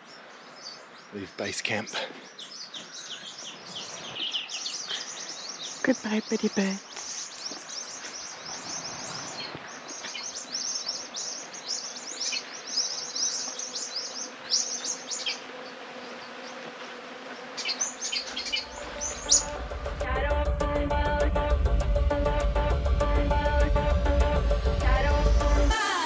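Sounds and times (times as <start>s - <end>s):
small birds chirping: 0.0s - 20.4s
low background music: 18.7s - 26.0s.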